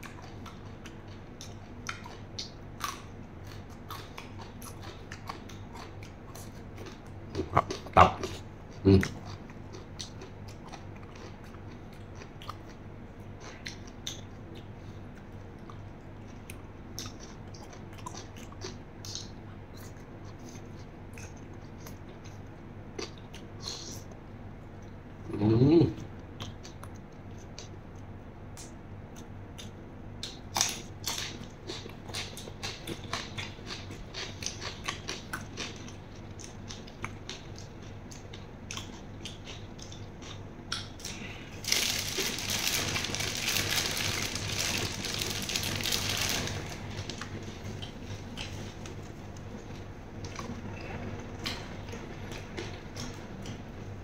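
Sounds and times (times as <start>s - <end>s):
wet chewing and smacking: 0.0s - 25.0s, 26.1s - 53.9s
person humming: 25.3s - 26.0s
crisp cucumber chewing: 26.2s - 53.7s.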